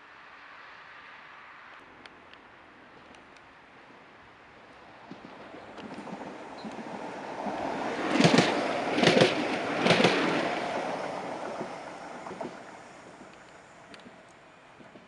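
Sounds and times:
tram running rumble: 3.8s - 15.0s
tram wheels clattering over rail joint: 5.1s - 15.0s.

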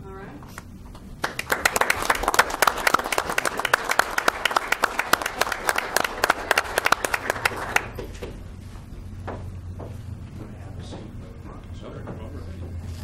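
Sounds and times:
group applause: 1.2s - 8.2s.

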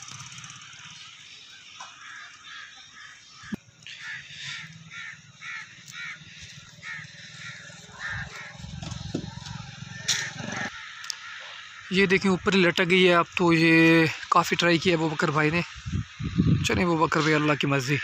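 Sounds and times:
crow cawing: 1.4s - 12.8s.

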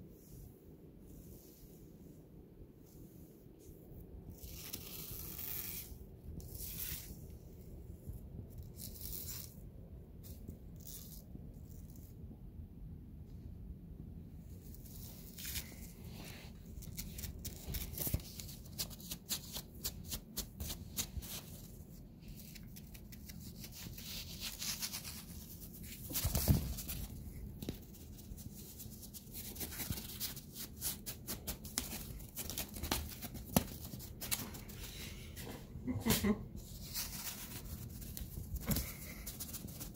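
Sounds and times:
cat scuffling: 23.4s - 39.9s.

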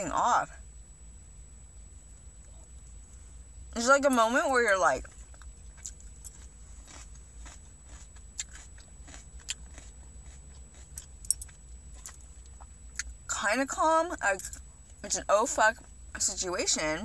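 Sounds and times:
person chewing food: 5.1s - 13.1s.

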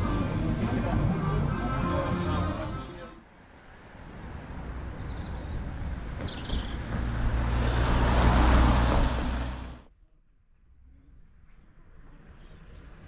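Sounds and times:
car driving by on wet road: 6.4s - 9.9s.

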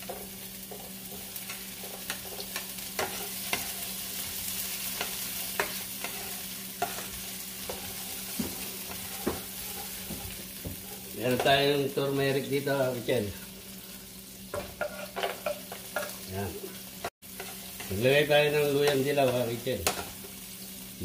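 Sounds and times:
vegetables sizzling in hot oil: 0.0s - 21.0s
plastic spoon scraping a pan: 6.0s - 11.1s.

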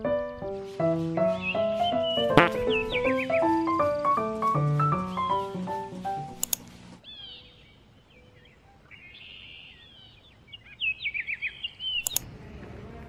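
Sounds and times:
faint outdoor hiss: 0.0s - 13.0s
songbirds chirping: 0.0s - 13.0s
sharp click: 6.4s - 6.7s, 12.0s - 12.3s.

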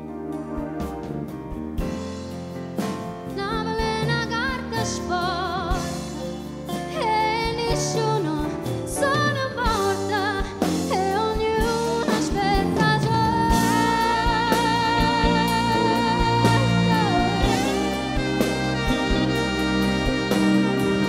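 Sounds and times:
live band drums and keyboards: 0.0s - 21.0s
woman singing: 3.3s - 19.5s.

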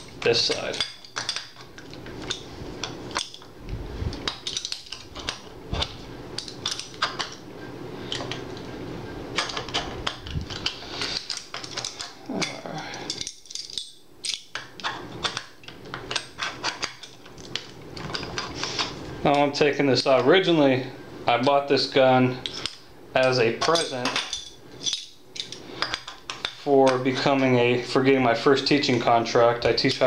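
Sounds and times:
metal bolts clicking and rattling: 0.0s - 3.5s, 4.2s - 7.4s, 9.3s - 20.3s, 22.4s - 27.5s
metal parts shifting: 0.0s - 3.5s, 4.1s - 7.4s, 8.0s - 19.5s, 22.4s - 27.0s.

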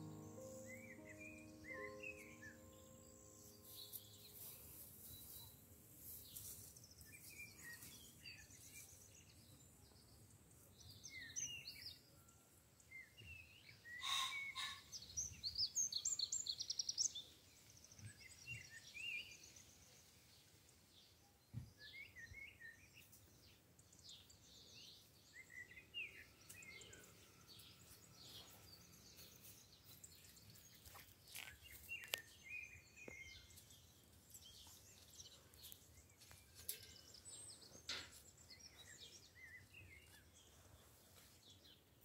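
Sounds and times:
birds chirping: 0.0s - 12.1s, 23.8s - 41.9s.

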